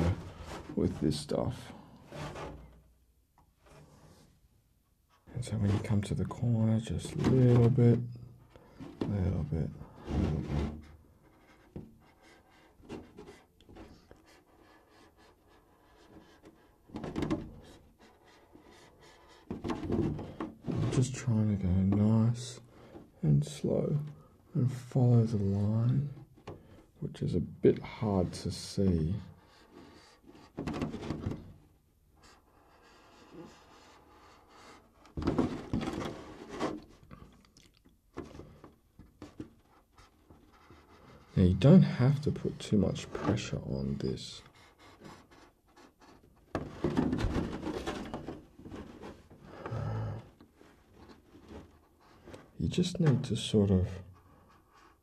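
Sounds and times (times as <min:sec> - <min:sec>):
plastic shell knocking and rustling: 0:19.4 - 0:21.0, 0:35.1 - 0:37.3, 0:46.2 - 0:49.7.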